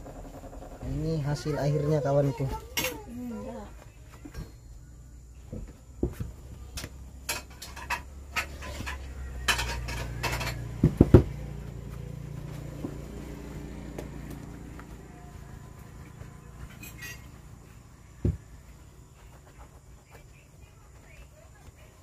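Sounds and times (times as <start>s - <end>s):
cloth rubbing metal: 15.3s - 18.0s.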